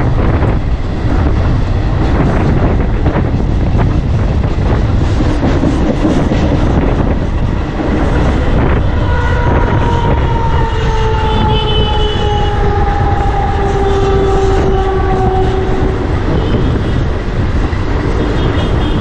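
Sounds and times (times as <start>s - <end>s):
train wheels rumbling: 0.0s - 19.0s
train whine falling in pitch: 8.1s - 16.6s.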